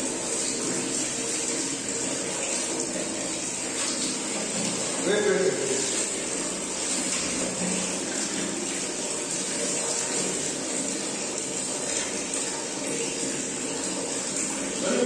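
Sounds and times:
tap water pouring into tub: 0:00.0 - 0:15.0
water splashing: 0:00.0 - 0:15.0.

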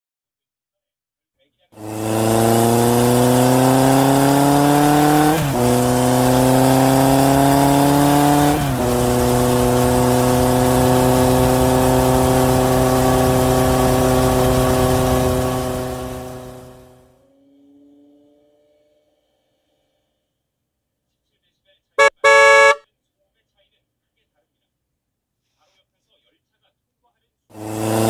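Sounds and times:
motorcycle engine accelerating: 0:01.8 - 0:19.1, 0:22.0 - 0:22.8, 0:27.5 - 0:28.0.

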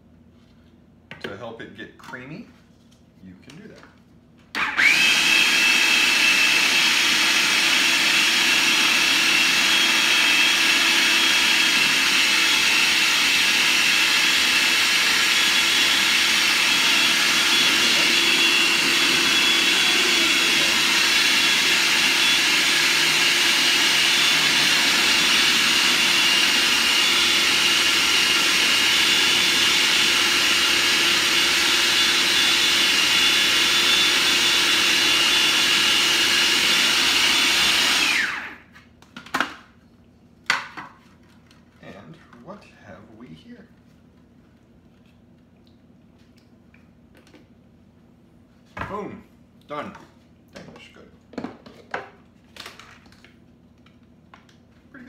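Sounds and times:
food processor motor whine: 0:04.5 - 0:38.7.

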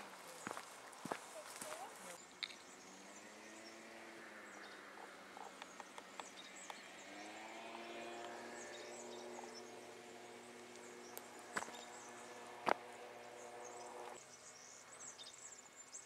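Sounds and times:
footsteps on stony dirt path: 0:00.0 - 0:02.2, 0:10.7 - 0:14.2
faint steady hum: 0:06.6 - 0:15.8.

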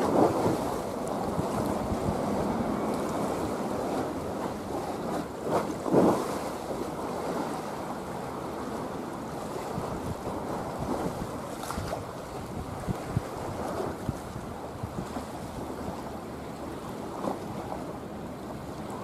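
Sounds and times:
choppy sea: 0:00.0 - 0:19.0
wind buffeting microphone: 0:00.0 - 0:19.0.

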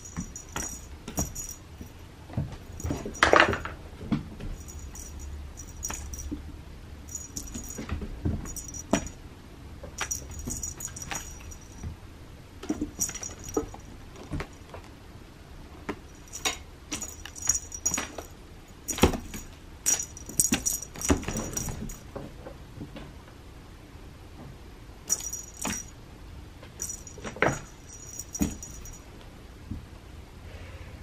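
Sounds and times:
small bells jingling: 0:00.0 - 0:03.8, 0:04.5 - 0:09.2, 0:10.0 - 0:11.9, 0:12.7 - 0:14.6, 0:16.0 - 0:22.1, 0:25.1 - 0:26.0, 0:26.8 - 0:29.1.

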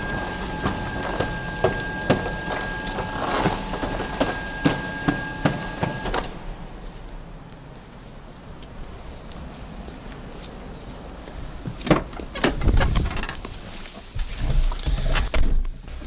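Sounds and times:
shutter motor whining: 0:00.0 - 0:06.4
roller shutter door clacking: 0:00.0 - 0:06.5.

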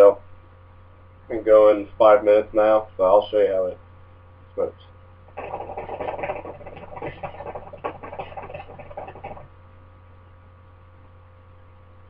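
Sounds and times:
hookah water bubbling: 0:05.3 - 0:09.5.

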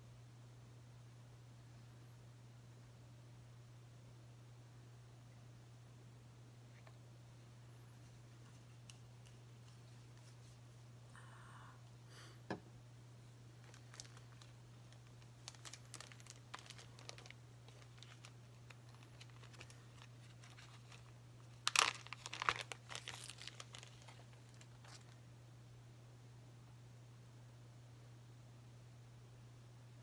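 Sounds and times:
steady low hum: 0:00.0 - 0:30.0
crinkling and rustling materials: 0:13.5 - 0:25.2.

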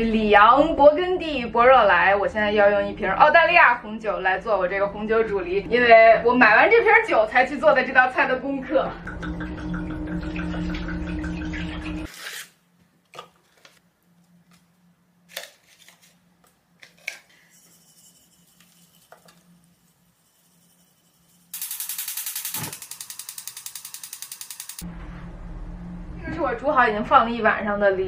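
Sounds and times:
wine pouring into saucepan: 0:09.1 - 0:12.1.

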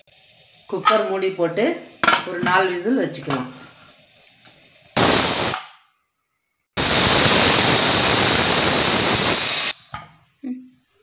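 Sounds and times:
pressure cooker steam hissing: 0:00.0 - 0:05.7, 0:06.8 - 0:09.8.

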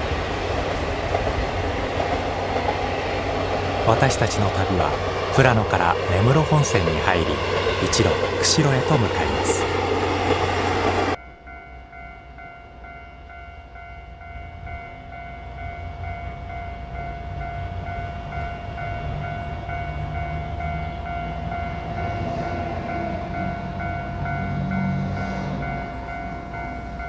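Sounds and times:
diesel railcar approaching: 0:00.0 - 0:27.0.

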